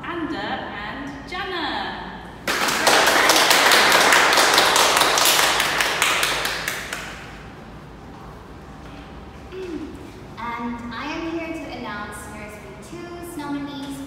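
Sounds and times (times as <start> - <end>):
small group applauding: 2.4 - 7.4.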